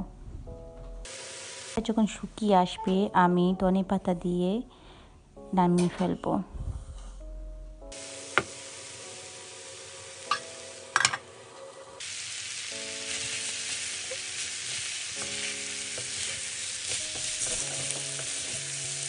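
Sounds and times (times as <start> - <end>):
food sizzling in a frying pan: 1.1 - 2.1, 7.9 - 19.0
wooden spatula stirring: 14.1 - 18.7.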